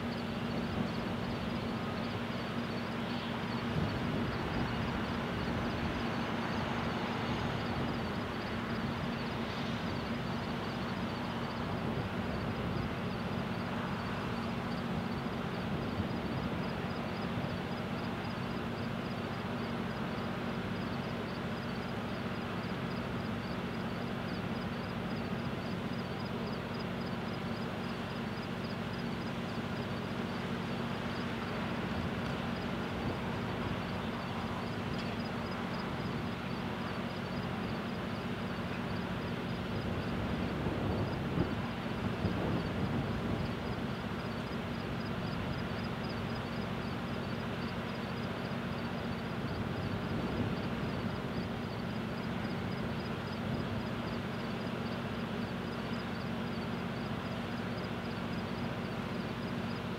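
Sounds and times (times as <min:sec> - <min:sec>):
low machinery hum: 0:00.0 - 0:59.9.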